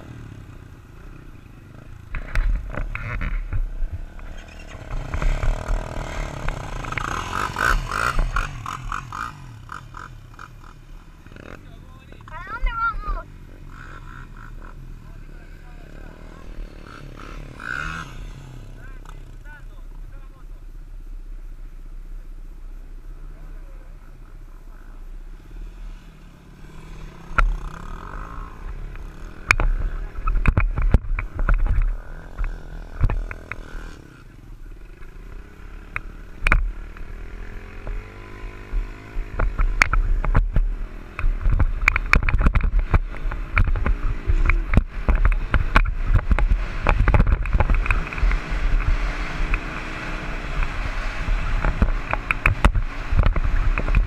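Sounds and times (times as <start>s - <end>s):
dirt bike engine revving: 0.0s - 19.5s, 24.9s - 54.0s
wind rushing over microphone: 38.5s - 54.0s.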